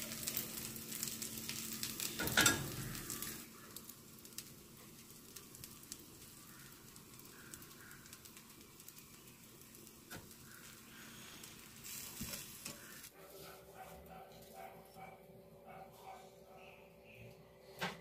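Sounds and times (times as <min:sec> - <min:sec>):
pancake sizzling on hot griddle: 0:00.0 - 0:13.1.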